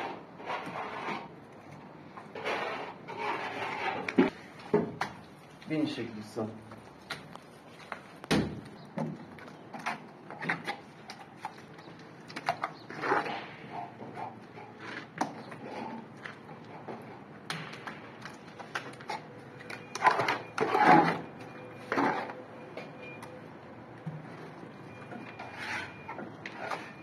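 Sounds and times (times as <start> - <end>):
plastering tools scraping: 0.0 - 4.7, 24.9 - 27.0.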